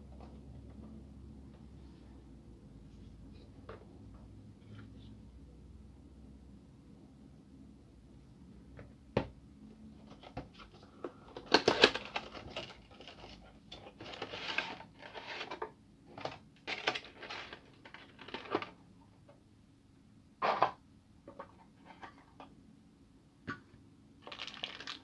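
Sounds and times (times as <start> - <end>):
plastic and cardboard crinkling: 10.0 - 18.8, 24.2 - 25.0.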